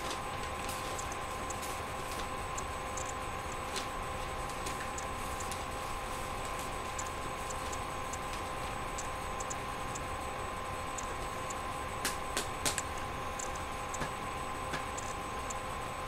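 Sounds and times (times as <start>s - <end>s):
electrical hum with tones: 0.0s - 16.0s
computer mouse clicking: 0.9s - 3.6s, 6.9s - 8.4s, 9.0s - 10.1s.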